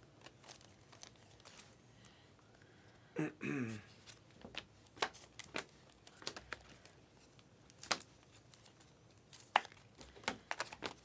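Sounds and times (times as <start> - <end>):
trading cards flipped by hand: 4.0 - 6.9, 7.7 - 11.0.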